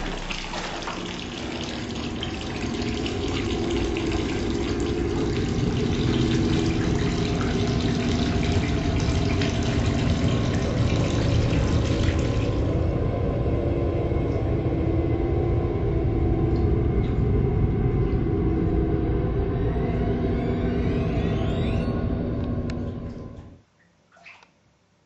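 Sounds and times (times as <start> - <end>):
tap water running into bathtub: 0.0 - 12.8.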